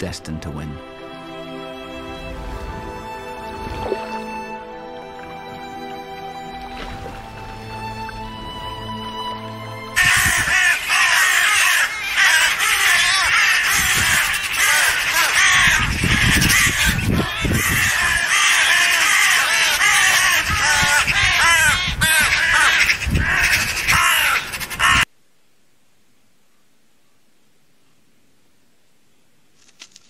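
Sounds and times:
crows and magpies calling: 0:10.0 - 0:25.1.

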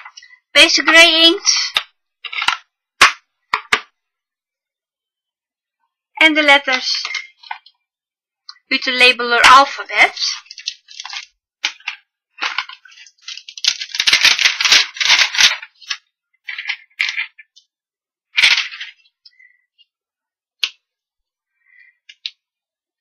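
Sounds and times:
plastic sheet crinkling: 0:10.0 - 0:17.7, 0:18.3 - 0:19.4.

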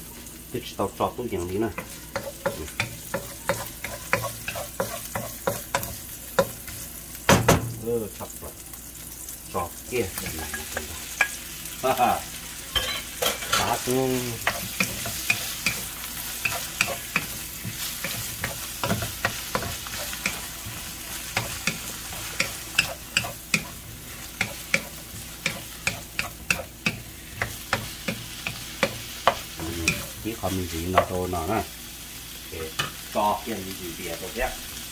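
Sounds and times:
meat sizzling in a wok: 0:00.0 - 0:34.9
wooden spatula knocking on pan: 0:07.3 - 0:07.8.

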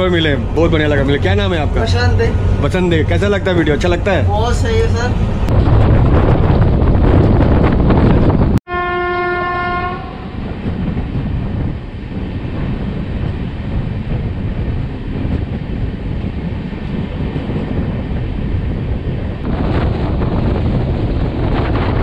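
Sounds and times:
train wheels rumbling on rails: 0:00.0 - 0:08.6, 0:09.4 - 0:22.0
wind rushing: 0:00.0 - 0:22.0
train horn: 0:08.7 - 0:10.4.

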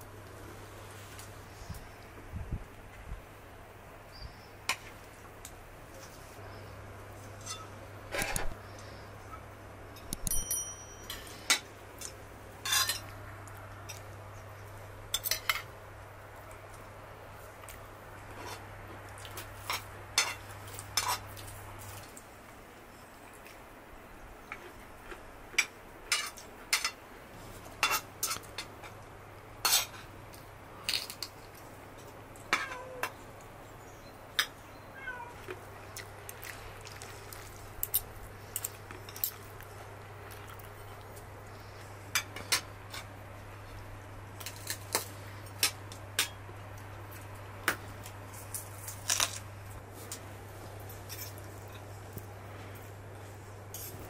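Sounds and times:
cutlery clinking on plates: 0:10.0 - 0:11.6, 0:12.6 - 0:13.0.

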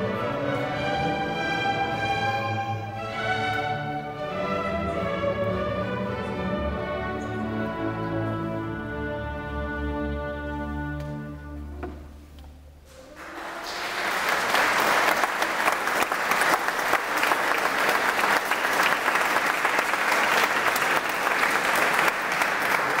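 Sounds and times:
audience applauding: 0:13.0 - 0:23.0.

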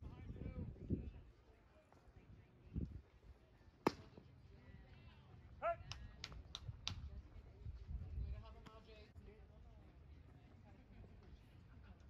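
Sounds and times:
baseball smacking into mitt: 0:03.8 - 0:04.1
sharp claps: 0:05.9 - 0:07.0.

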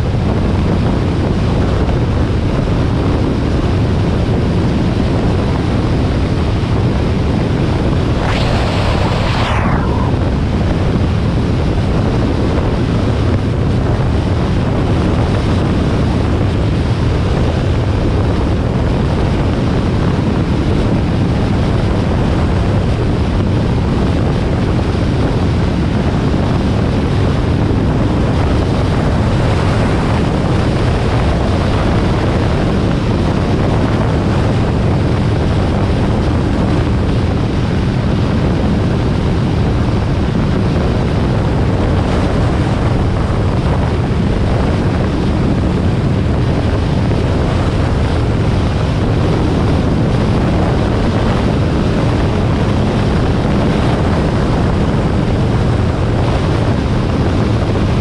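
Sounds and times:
wind rush on microphone: 0:00.0 - 0:58.0
whoosh falling in pitch: 0:08.0 - 0:11.0.

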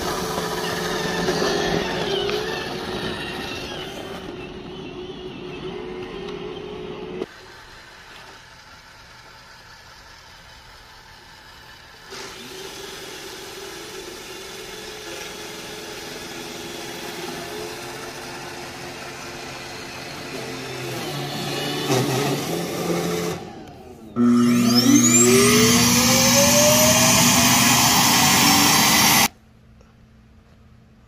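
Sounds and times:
robot vacuum humming: 0:00.0 - 0:07.3, 0:17.3 - 0:29.3.

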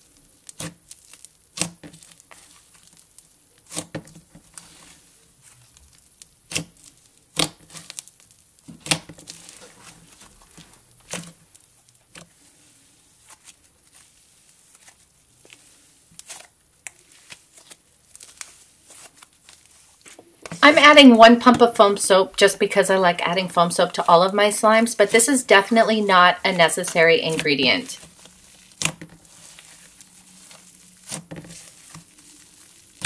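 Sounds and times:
slime crackling and tearing: 0:00.0 - 0:20.6, 0:28.0 - 0:33.0
slime popping: 0:00.4 - 0:12.4, 0:13.2 - 0:20.8, 0:28.0 - 0:33.0.

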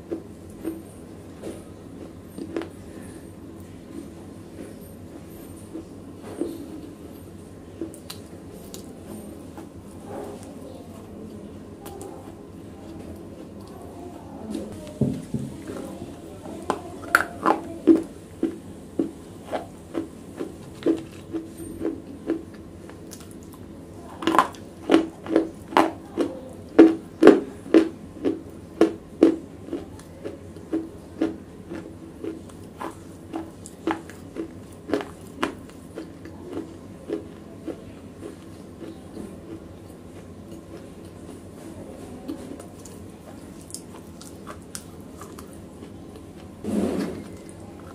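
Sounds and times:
chewing crunchy slate: 0:17.0 - 0:41.5, 0:42.2 - 0:47.9.

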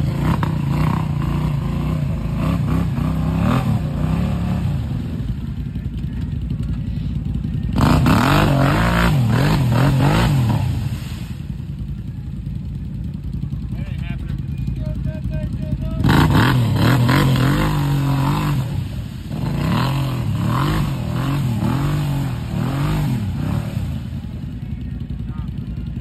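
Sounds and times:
atv engine revving: 0:00.0 - 0:26.0
tires spinning in mud: 0:07.6 - 0:11.8, 0:14.8 - 0:25.2
mud and water spraying: 0:07.6 - 0:12.0, 0:15.0 - 0:25.2.

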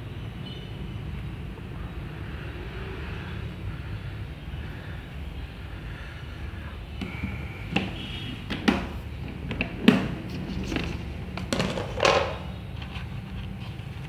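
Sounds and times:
plastic lid knocks: 0:11.4 - 0:12.6.

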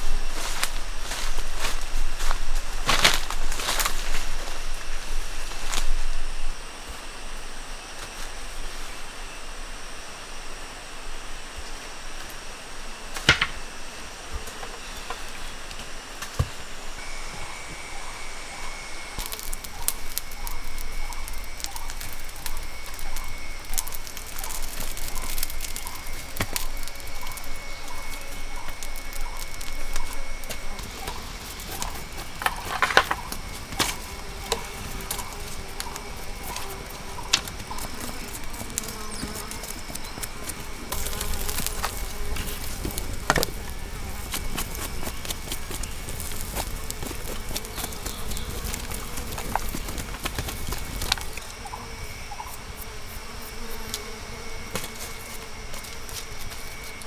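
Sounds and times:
high-pitched insect drone: 0:00.0 - 0:57.0
campfire crackling and popping: 0:13.2 - 0:13.6, 0:19.1 - 0:51.8.

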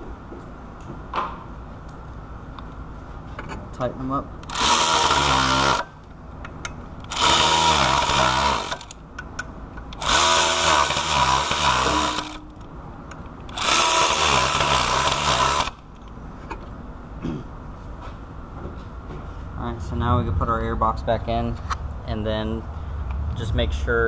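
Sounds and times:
power tool driving socket: 0:04.4 - 0:06.0, 0:07.0 - 0:09.0, 0:09.8 - 0:12.6, 0:13.5 - 0:16.1.

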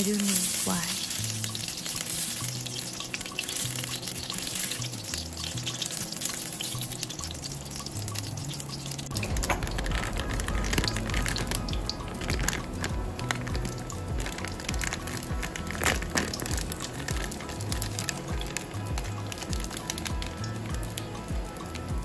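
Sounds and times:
plastic bag crinkling: 0:00.0 - 0:07.1, 0:09.1 - 0:18.7
background music with bass line: 0:00.0 - 0:22.0
sausages sizzling in oil: 0:00.0 - 0:22.0.

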